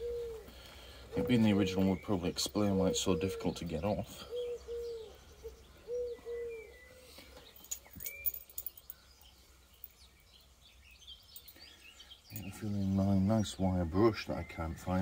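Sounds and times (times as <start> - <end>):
pigeon cooing: 0.0 - 7.4
small bird chirping: 0.0 - 15.0.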